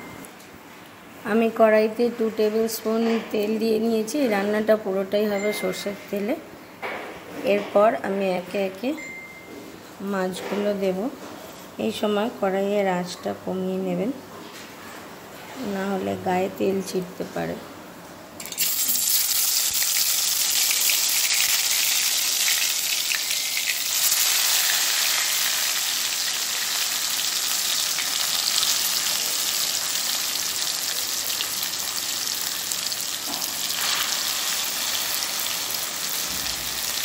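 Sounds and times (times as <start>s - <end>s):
fish frying in sizzling oil: 18.4s - 37.0s.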